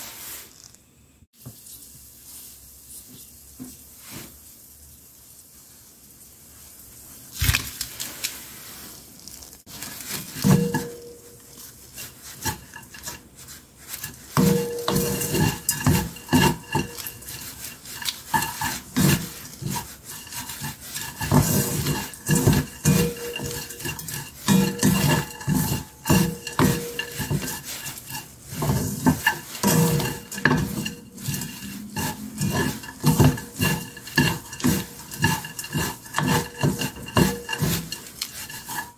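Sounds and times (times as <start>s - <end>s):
faint sizzle: 0.0s - 38.9s
chopsticks scraping a pan: 9.6s - 38.9s.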